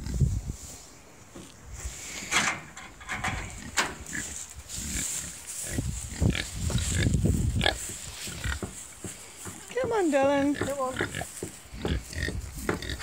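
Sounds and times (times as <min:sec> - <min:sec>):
pigs grunting: 0:10.3 - 0:13.0.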